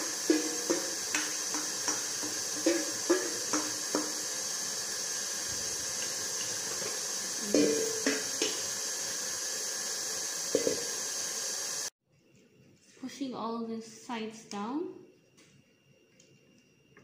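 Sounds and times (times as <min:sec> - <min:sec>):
steady hiss: 0:00.0 - 0:11.9
metal bowls knocking and clinking: 0:00.1 - 0:04.2, 0:06.7 - 0:08.6.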